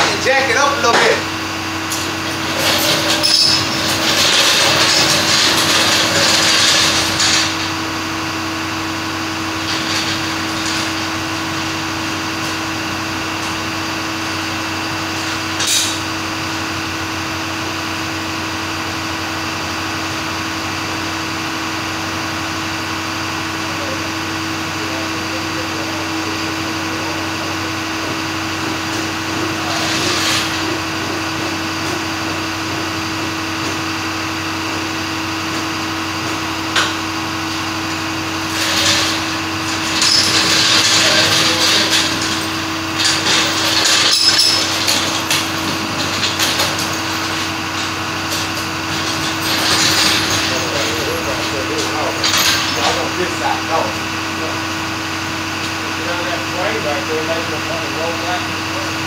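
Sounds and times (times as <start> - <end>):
machinery humming: 0.0 - 59.0.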